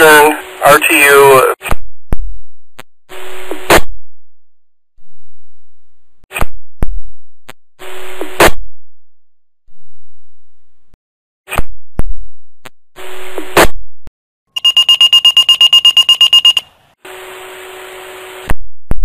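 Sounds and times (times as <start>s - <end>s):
radio static bursts: 0.0s - 1.7s
rapid high-pitched beeping: 14.6s - 16.7s.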